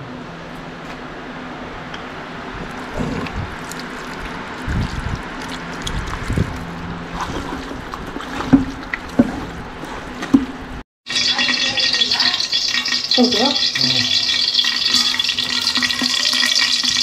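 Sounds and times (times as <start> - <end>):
hand kneading wet food squelching: 2.6 - 10.8.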